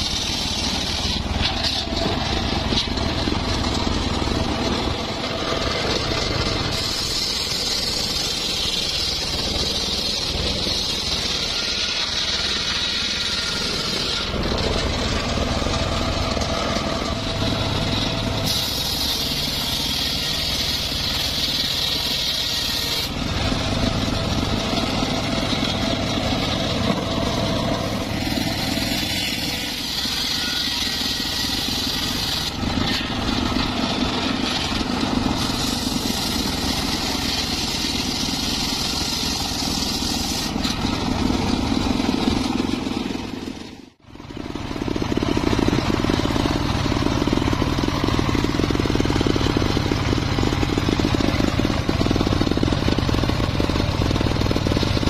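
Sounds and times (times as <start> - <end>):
circular saw cutting wood: 0.0 - 55.0.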